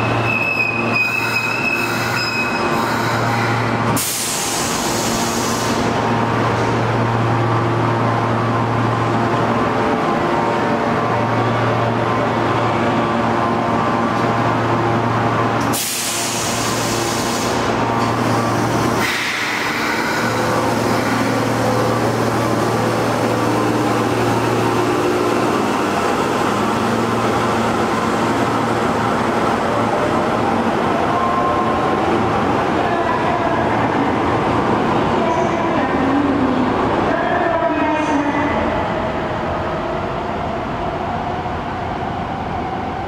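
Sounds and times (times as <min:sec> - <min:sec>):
subway train motors and wheels: 0:00.0 - 0:43.0
train air hisses: 0:02.8 - 0:06.0, 0:15.6 - 0:21.2.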